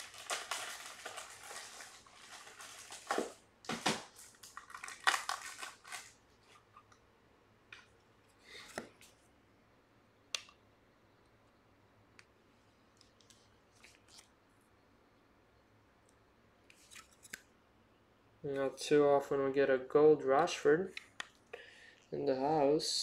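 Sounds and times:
crinkling plastic rustle: 0.0 - 6.8.

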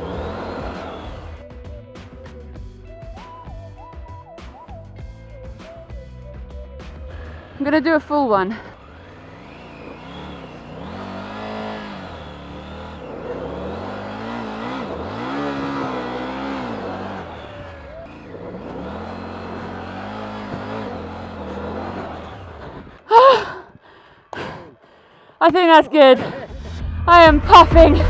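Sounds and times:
motorcycle engine revving: 0.0 - 1.8, 6.8 - 23.5.

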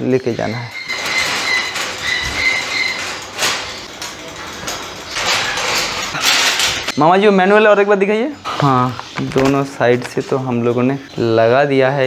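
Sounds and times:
metal wire panels scraping: 0.0 - 7.0
high metal squeal: 0.0 - 7.8.

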